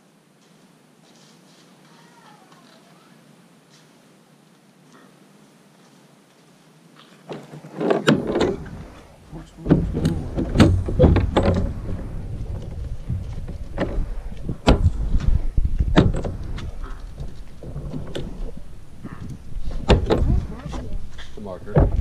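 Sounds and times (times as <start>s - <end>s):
knocks and clatter of work: 7.3s - 22.0s
steady low rumble: 8.2s - 22.0s.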